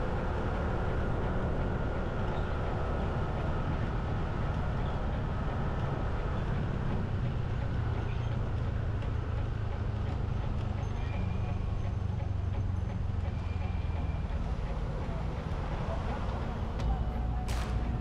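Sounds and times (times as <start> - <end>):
road noise: 0.0 - 18.0
vehicle engine rumble: 0.0 - 18.0.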